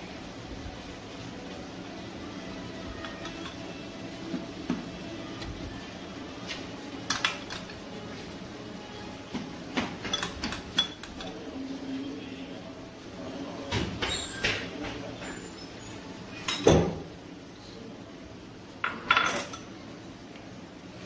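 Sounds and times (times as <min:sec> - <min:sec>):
utensils clinking against dishes: 0:03.0 - 0:04.8, 0:07.0 - 0:07.9, 0:09.8 - 0:11.6, 0:13.7 - 0:17.1, 0:18.8 - 0:19.8.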